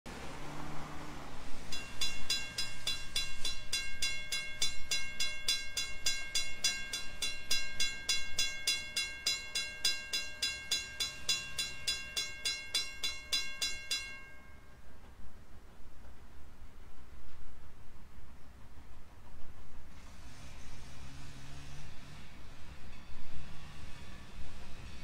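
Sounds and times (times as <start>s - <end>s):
railroad crossing bell ringing: 1.6s - 15.0s.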